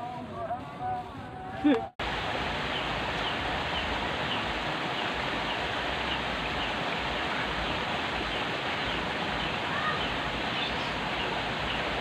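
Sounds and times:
water rushing through drain: 0:02.0 - 0:12.0.

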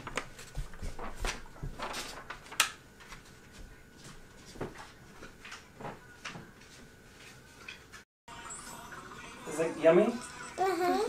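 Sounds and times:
soft taps and rustles: 0:00.0 - 0:08.0.

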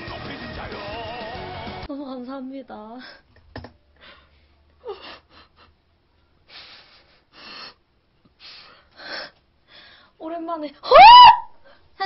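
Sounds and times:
woman gasping and breathing hard: 0:08.4 - 0:10.1.

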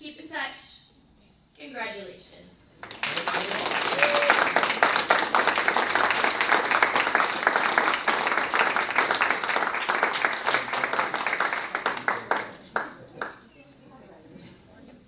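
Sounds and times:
people applauding: 0:02.8 - 0:13.4.

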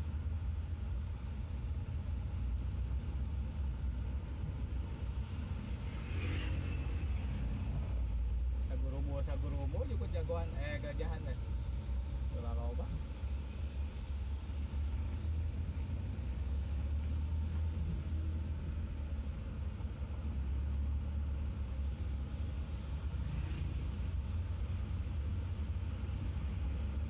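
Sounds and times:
engine and road rumble: 0:00.0 - 0:27.0
brief hiss: 0:23.2 - 0:24.3.

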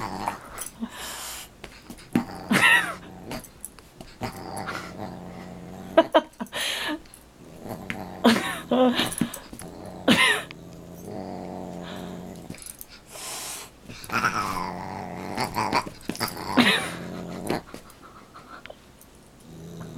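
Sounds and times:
dog growling: 0:00.0 - 0:00.8, 0:02.0 - 0:06.3, 0:07.4 - 0:12.8, 0:14.0 - 0:18.3, 0:19.4 - 0:19.9.

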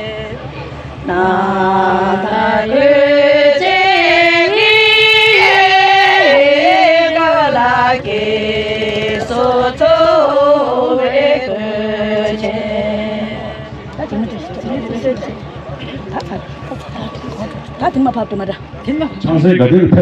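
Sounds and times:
voices singing a chant: 0:00.0 - 0:15.4.

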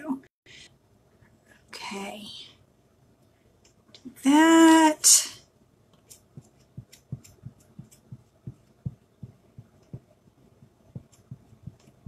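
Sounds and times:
hand pressing soft thumps: 0:06.3 - 0:12.0.

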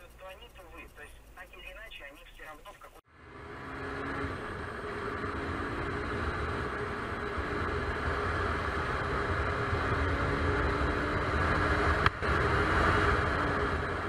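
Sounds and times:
motorcycle engine running: 0:03.1 - 0:14.0.

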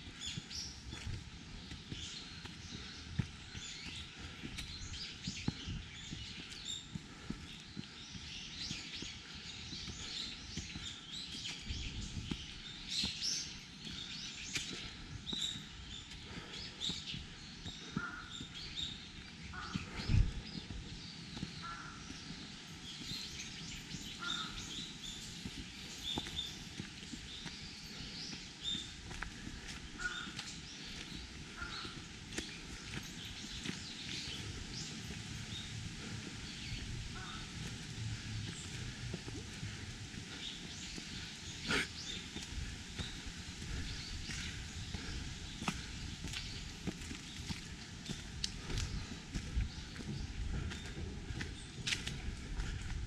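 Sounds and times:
birds chirping and calling: 0:00.0 - 0:53.0
soft footsteps: 0:00.0 - 0:53.0
short low bird calls: 0:28.8 - 0:32.9, 0:39.5 - 0:46.6.

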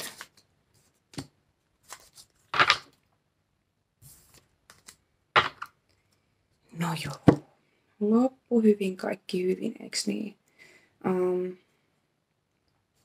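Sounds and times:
cards shuffling: 0:00.0 - 0:03.0, 0:04.0 - 0:05.9.

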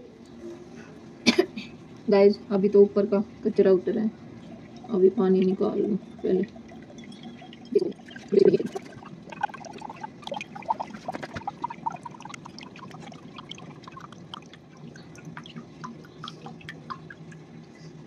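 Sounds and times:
water dripping into metal mug: 0:04.4 - 0:17.4.

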